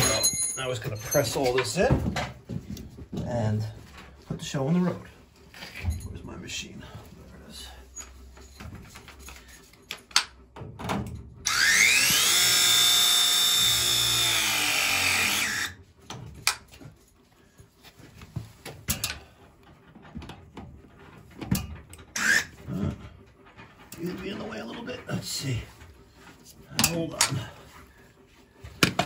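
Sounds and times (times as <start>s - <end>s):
press tool motor whining: 11.4s - 15.8s
tool handling clicks and knocks: 18.4s - 22.1s, 26.2s - 27.5s, 28.7s - 29.0s.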